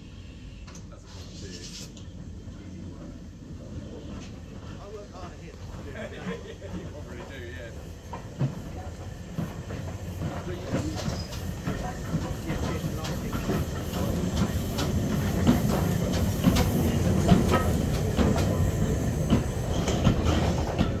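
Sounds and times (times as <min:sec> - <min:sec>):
steam locomotive rumble: 0:00.0 - 0:21.0
wheels clanking over rail joints: 0:06.7 - 0:21.0.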